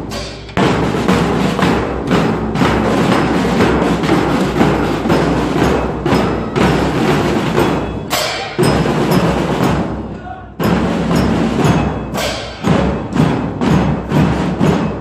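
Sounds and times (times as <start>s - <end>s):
marching drum band: 0.0s - 15.0s
sharp loud drum hit: 10.6s - 15.0s.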